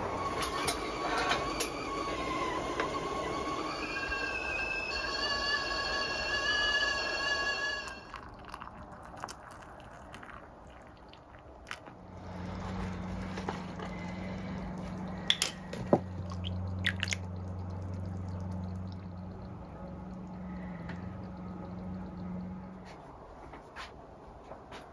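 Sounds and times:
kettle whistle: 0:00.0 - 0:10.9, 0:11.7 - 0:23.1
low hum: 0:01.4 - 0:23.7
liquid pouring: 0:06.9 - 0:23.0
spoon clinking on mug: 0:07.9 - 0:10.9, 0:15.2 - 0:17.2.

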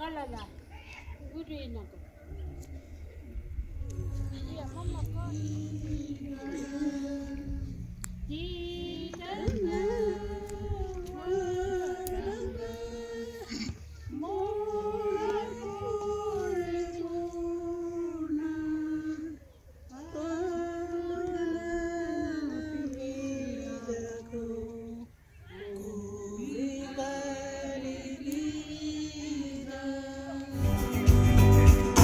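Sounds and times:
women singing a hymn: 0:03.4 - 0:30.7
loud music with guitar: 0:30.6 - 0:32.0.

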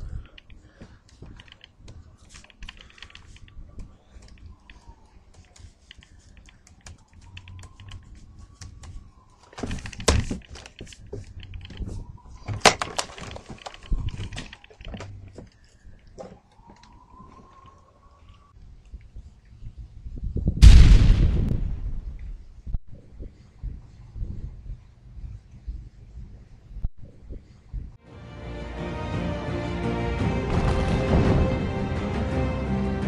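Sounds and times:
typing on laptop keyboard: 0:00.0 - 0:09.0.

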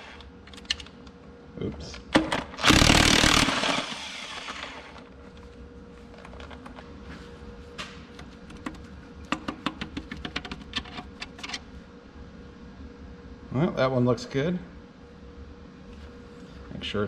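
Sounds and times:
air wrench burst: 0:02.6 - 0:04.9.

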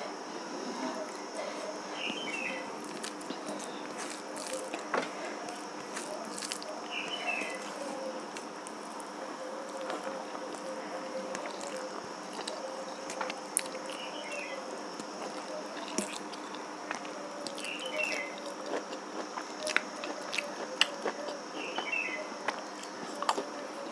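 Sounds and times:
electric fan humming: 0:00.0 - 0:23.9
fingers mixing food on steel plate: 0:01.5 - 0:08.8.

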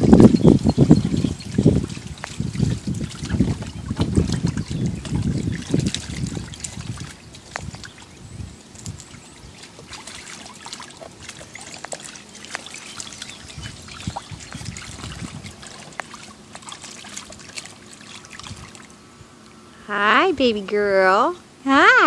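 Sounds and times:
water sloshing and splashing: 0:00.0 - 0:19.6.

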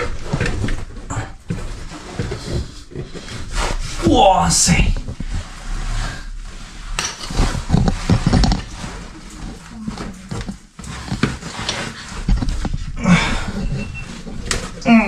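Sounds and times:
man breathing hard and grunting: 0:13.0 - 0:13.6.

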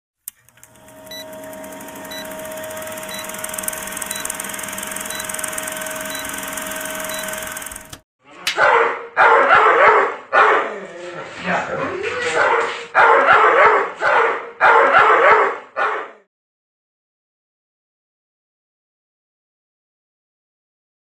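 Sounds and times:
dog barking: 0:08.6 - 0:10.8, 0:12.2 - 0:16.3.

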